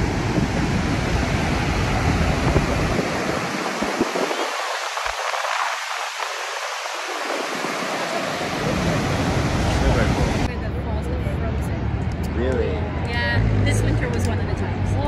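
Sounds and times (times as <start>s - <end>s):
waterfall roaring: 0.0s - 10.6s
wind rumble on microphone: 0.0s - 15.0s.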